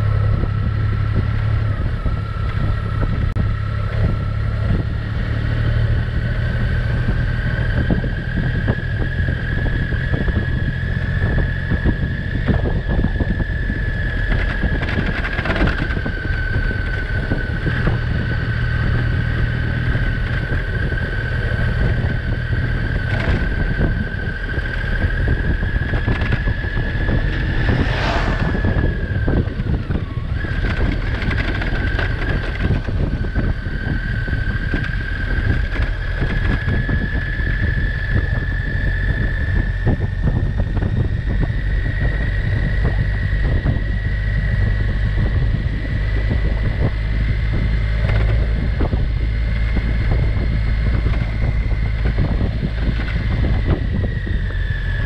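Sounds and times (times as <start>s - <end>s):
wind rush on microphone: 0.0s - 55.0s
steady high whine: 22.4s - 31.4s.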